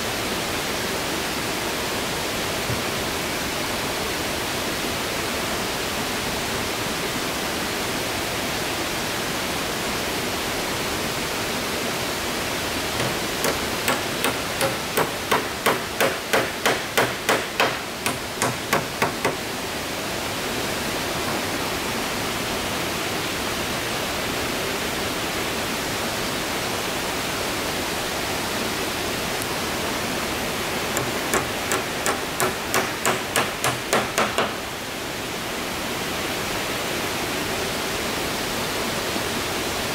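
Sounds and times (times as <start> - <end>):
steady rushing hiss: 10.5 - 39.2
hammer nailing boards: 13.0 - 19.5, 30.9 - 34.7.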